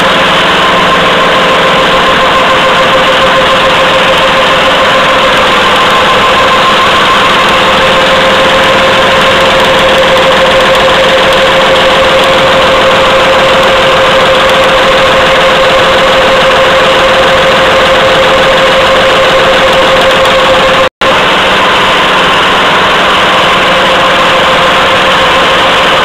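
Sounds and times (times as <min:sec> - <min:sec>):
packing machine running: 0:00.0 - 0:26.0.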